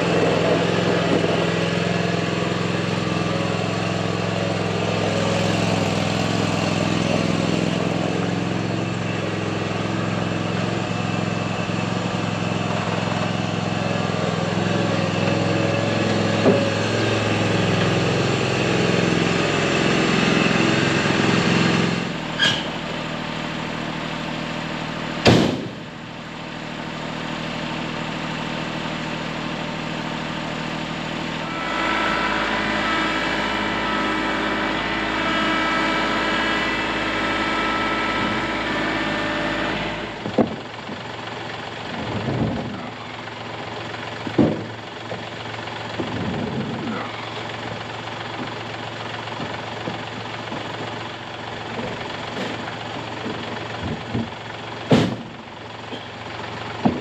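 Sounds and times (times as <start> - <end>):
vehicle engine running: 0.0 - 57.0
sharp knock: 54.9 - 55.3.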